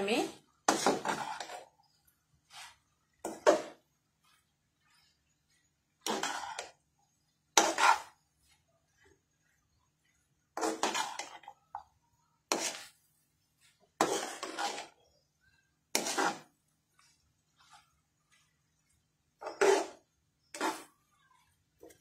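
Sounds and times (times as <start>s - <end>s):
spatula scraping metal pan: 0.6s - 1.8s, 2.4s - 9.0s, 10.5s - 15.2s, 15.9s - 18.0s, 19.4s - 21.1s.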